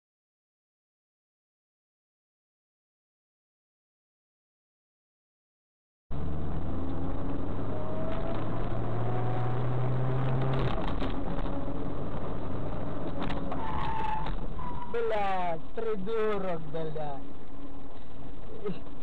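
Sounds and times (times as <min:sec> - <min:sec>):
car engine and road noise: 0:06.1 - 0:19.0.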